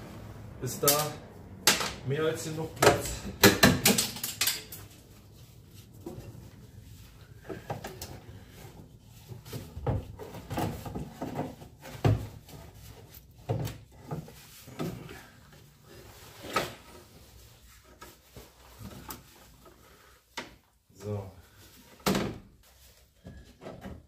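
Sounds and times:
clunks and knocks of parts: 2.7s - 5.1s, 7.3s - 17.1s, 23.2s - 24.0s.

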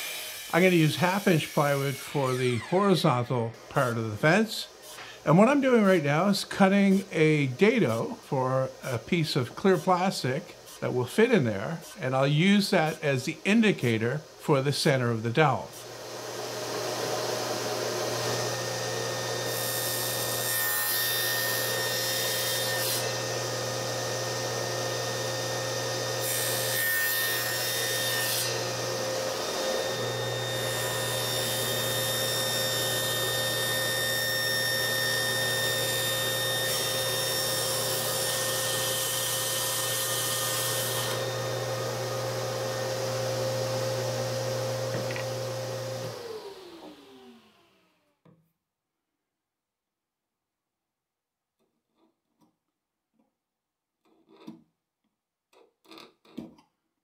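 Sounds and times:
saw blade cutting wood: 0.0s - 3.2s, 15.7s - 47.6s
table saw motor hum: 15.8s - 48.2s.

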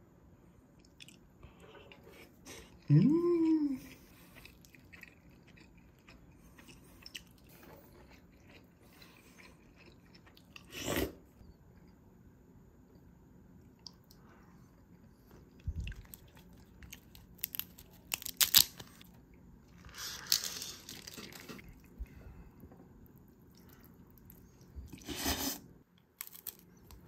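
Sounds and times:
food crunching while chewed: 3.8s - 11.2s, 15.4s - 22.1s, 26.0s - 27.0s.

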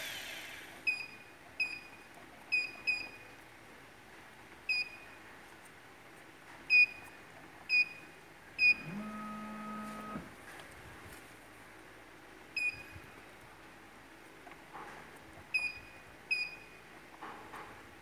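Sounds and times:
high keypad beeps: 0.9s - 3.2s, 12.6s - 13.0s, 15.6s - 16.8s
low steady hum: 6.1s - 14.3s.

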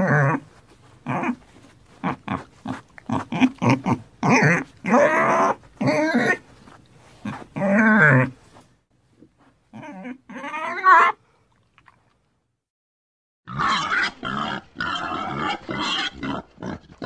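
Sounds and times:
pig squealing: 0.0s - 0.4s, 1.1s - 1.4s, 2.0s - 6.4s, 7.3s - 8.3s, 9.8s - 11.2s, 13.5s - 16.8s.

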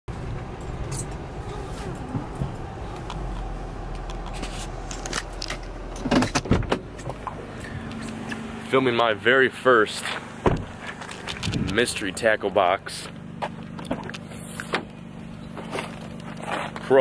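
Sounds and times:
car engine idling: 0.1s - 17.0s
gear selector knocks and clunks: 4.0s - 7.4s.

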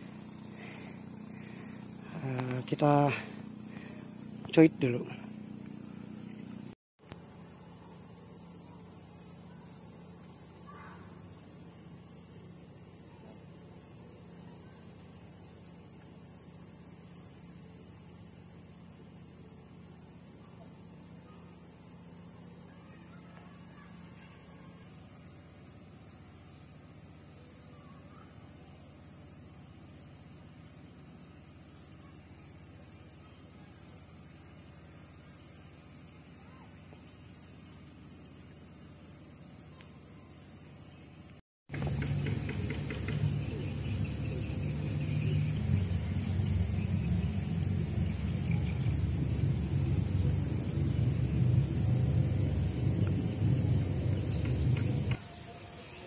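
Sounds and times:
insects droning high-pitched: 0.0s - 56.0s
low rumble: 41.8s - 55.2s.

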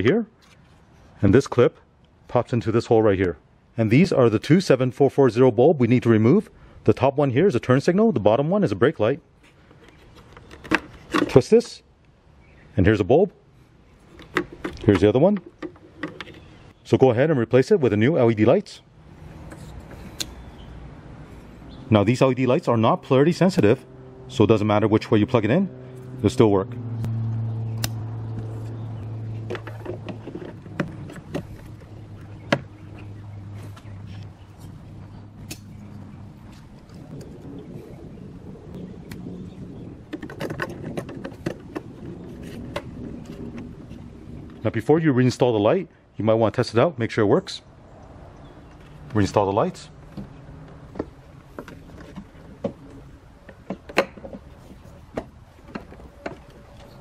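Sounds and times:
low motor hum: 19.0s - 44.7s, 49.9s - 57.0s.

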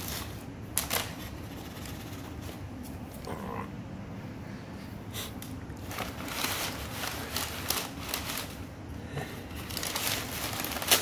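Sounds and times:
packing paper crinkling: 0.0s - 2.9s, 5.2s - 11.0s.

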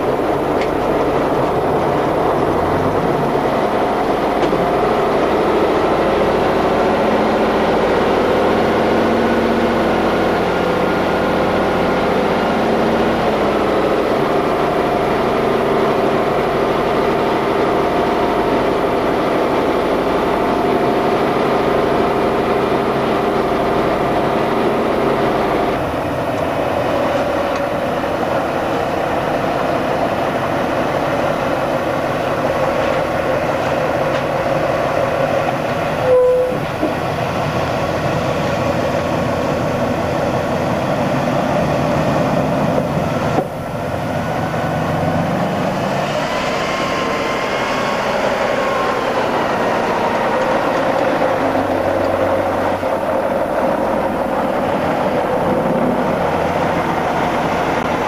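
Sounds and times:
truck diesel engine under load: 0.0s - 58.0s
short beep tone: 36.0s - 36.6s.

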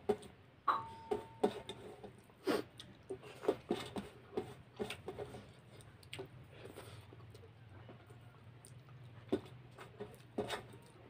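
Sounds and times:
fingers mixing rice on steel plate: 1.1s - 11.0s
mouth chewing: 2.2s - 3.7s, 5.3s - 11.0s.

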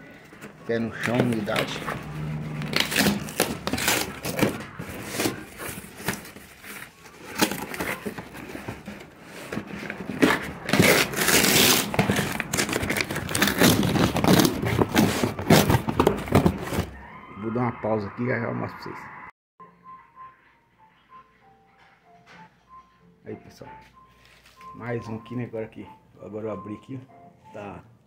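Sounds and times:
package crinkling and tearing: 2.6s - 8.2s, 10.1s - 16.8s.

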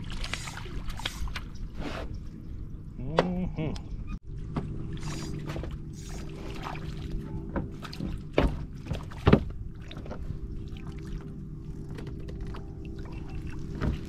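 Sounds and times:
boat engine hum: 0.0s - 14.0s
gear knocking against boat: 7.4s - 10.2s.

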